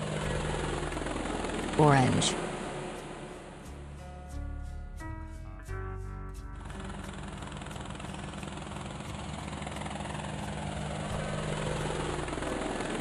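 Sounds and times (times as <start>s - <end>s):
helicopter rotor blades chopping: 0.0s - 4.0s, 6.6s - 13.0s
helicopter engine hum: 0.0s - 4.8s, 6.3s - 13.0s.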